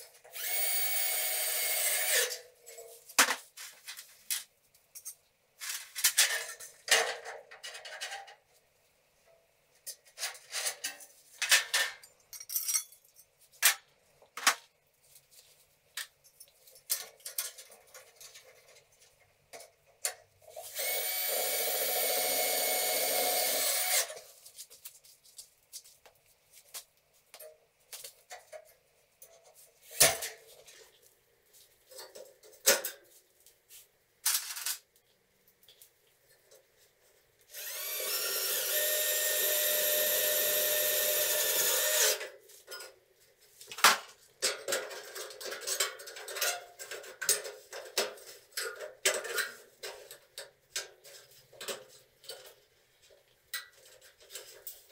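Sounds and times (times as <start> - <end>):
power drill running: 0.3 - 2.3, 20.7 - 24.1, 37.5 - 42.2.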